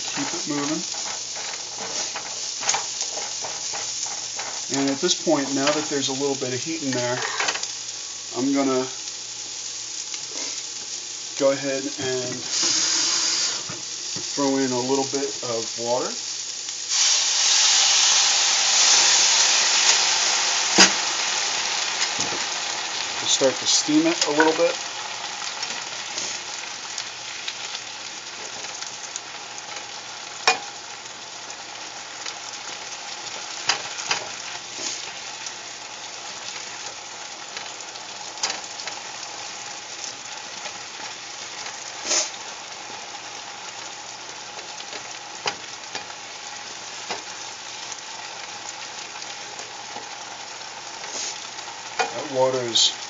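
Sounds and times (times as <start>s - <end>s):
spatula scraping a pan: 0.0s - 6.0s, 7.1s - 7.7s, 33.7s - 35.2s, 41.9s - 42.4s
vegetables sizzling in frying pan: 0.0s - 53.0s.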